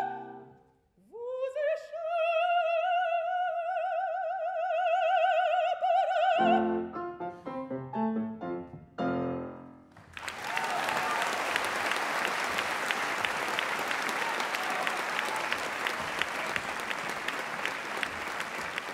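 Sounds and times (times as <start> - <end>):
grand piano chords: 6.4 - 9.9
audience applause: 9.9 - 18.9.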